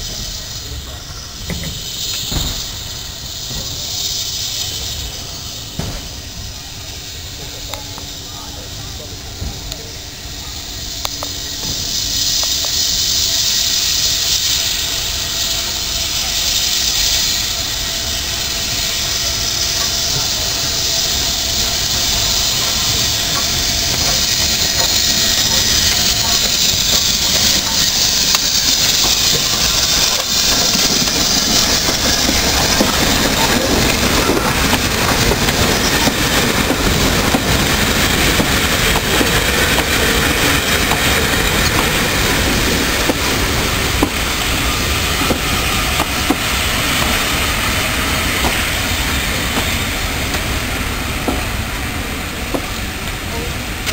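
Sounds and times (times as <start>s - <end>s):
steam locomotive hissing: 0.0s - 53.9s
wheels clacking over rail joints: 11.0s - 50.6s.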